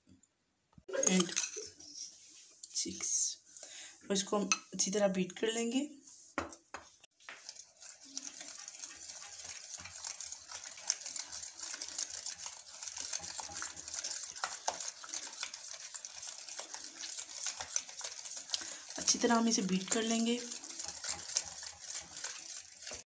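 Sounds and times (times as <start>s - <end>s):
wet swish of batter: 7.1s - 23.0s
utensil scraping a ceramic bowl: 7.4s - 23.0s.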